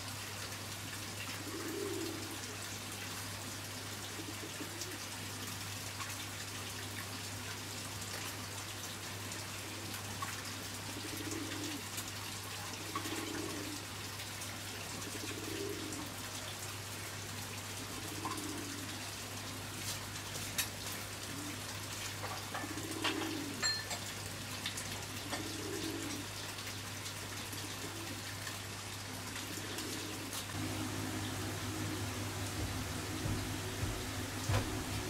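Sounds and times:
low cooing calls: 1.3 - 2.5, 4.0 - 5.1, 10.9 - 11.9, 12.7 - 13.9, 15.0 - 16.3, 17.8 - 19.2, 21.2 - 23.7, 25.2 - 26.4, 29.4 - 35.0
steady hiss: 30.4 - 35.0
low hum: 30.6 - 35.0.

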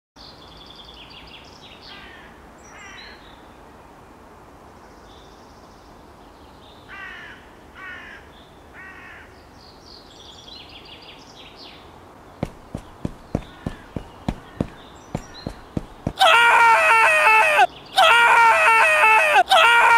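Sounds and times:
small birds chirping: 12.2 - 16.8
harsh raspy bird calls: 12.4 - 19.9.

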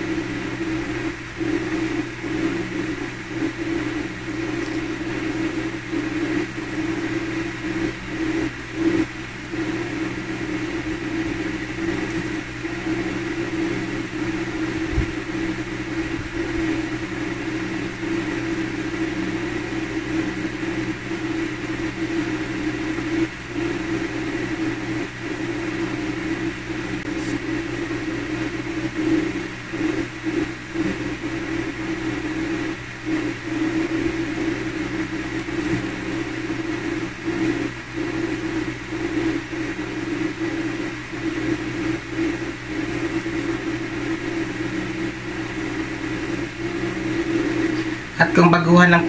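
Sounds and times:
steady mechanical hum: 0.0 - 49.0.

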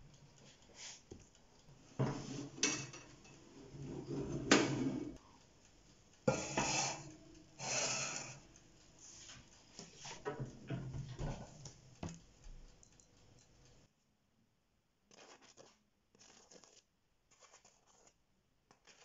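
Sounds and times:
metal pan scraping and clattering: 2.0 - 5.2, 6.3 - 8.4
oven door opening: 3.7 - 5.1, 10.2 - 11.6.

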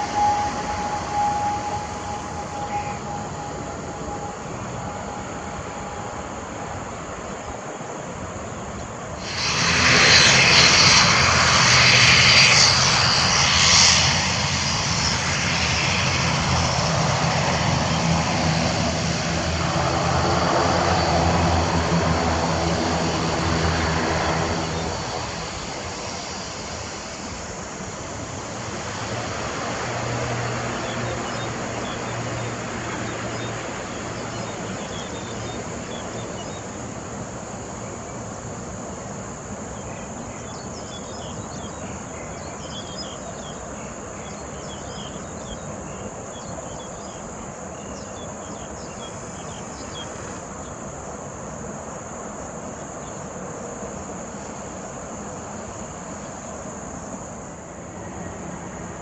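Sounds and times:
pitched hum: 0.0 - 8.2, 9.2 - 26.2
turboprop engines and propellers: 0.0 - 59.0.

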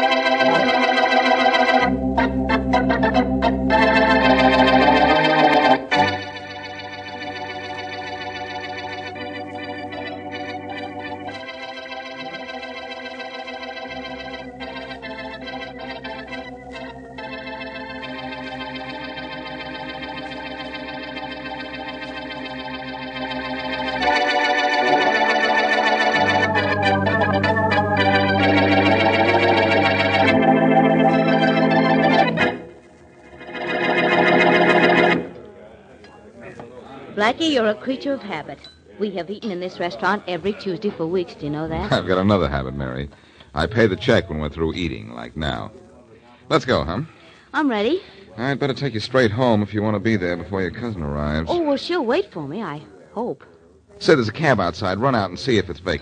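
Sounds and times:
organ playing chords: 0.0 - 35.5, 41.5 - 45.6.

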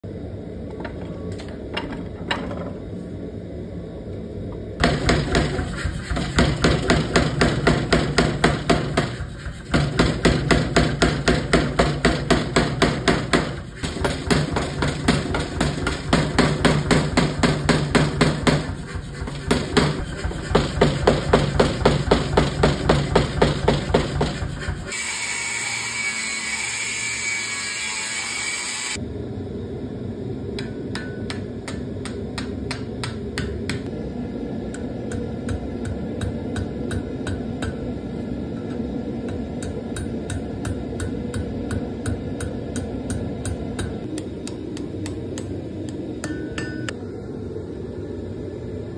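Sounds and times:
power hammer pounding steel: 4.8 - 28.0, 46.2 - 46.9
angle grinder cutting steel: 24.9 - 29.0.

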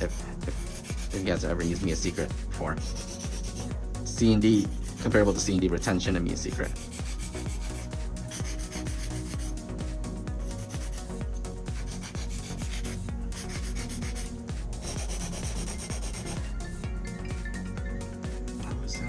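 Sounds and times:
nail file rasping on nail: 0.0 - 1.3, 2.8 - 3.7, 4.5 - 5.4, 6.6 - 16.4.

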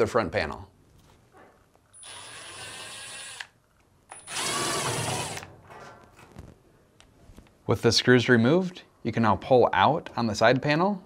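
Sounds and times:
cordless drill motor: 2.0 - 3.6, 4.2 - 5.5.

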